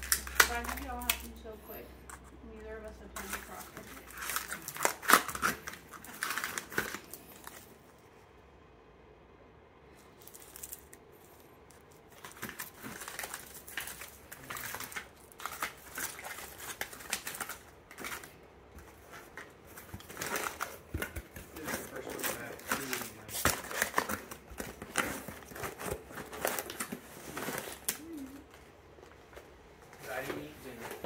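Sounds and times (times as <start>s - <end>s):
plastic packages crinkling: 0.0s - 1.6s, 2.6s - 8.0s, 10.1s - 29.0s.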